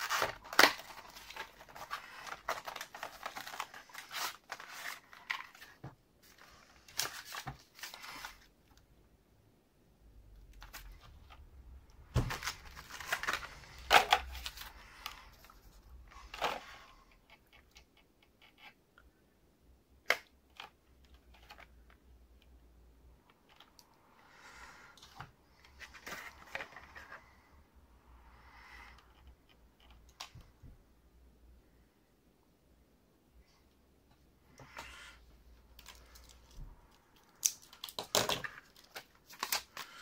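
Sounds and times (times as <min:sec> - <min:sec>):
plastic packaging crackling: 0:00.0 - 0:05.8, 0:12.2 - 0:15.2, 0:35.8 - 0:40.0
soft plastic rustling: 0:00.0 - 0:08.8, 0:10.5 - 0:18.8, 0:24.9 - 0:27.5, 0:33.5 - 0:40.0.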